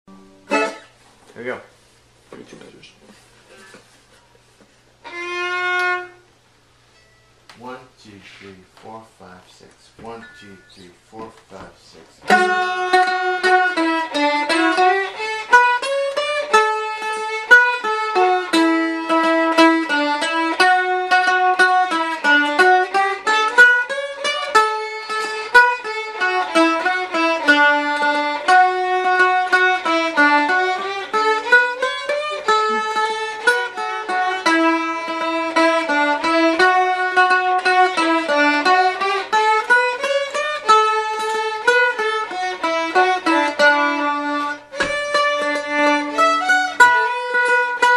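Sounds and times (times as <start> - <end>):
fiddle playing folk melody: 0.1 - 1.0, 5.0 - 6.4, 11.5 - 47.9
plucked string accompaniment: 0.1 - 1.6, 2.4 - 9.4, 10.0 - 47.9.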